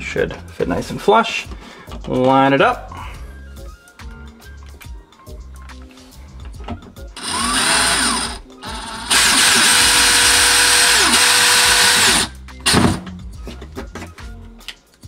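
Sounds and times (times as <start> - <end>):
cordless drill driving screws: 7.2 - 12.9.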